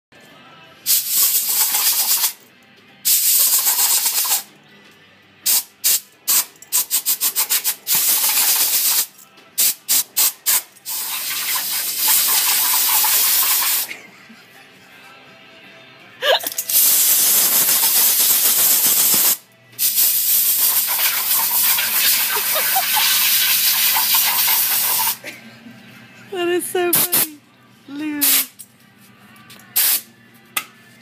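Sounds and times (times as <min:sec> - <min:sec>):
air gun hissing: 0:00.9 - 0:02.4, 0:03.1 - 0:04.5, 0:05.5 - 0:13.9, 0:16.6 - 0:25.2, 0:28.2 - 0:28.6, 0:29.8 - 0:30.1.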